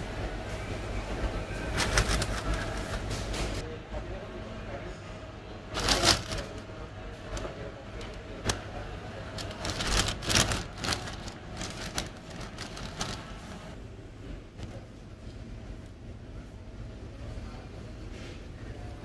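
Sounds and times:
paper bag crinkling: 0:01.6 - 0:03.1, 0:05.8 - 0:06.7, 0:07.3 - 0:13.8.

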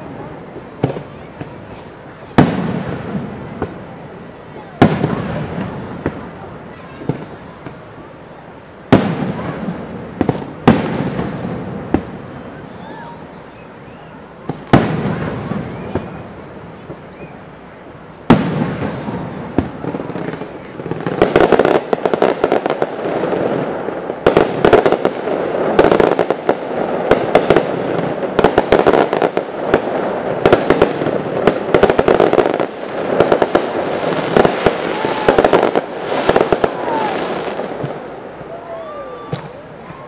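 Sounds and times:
fireworks popping and crackling: 0:00.0 - 0:08.1, 0:08.8 - 0:40.0.

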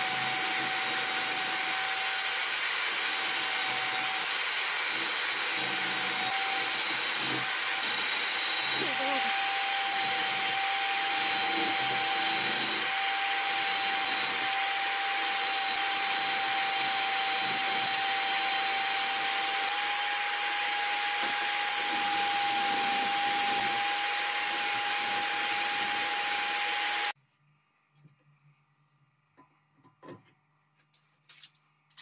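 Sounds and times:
electric drill motor whine: 0:00.0 - 0:27.2.

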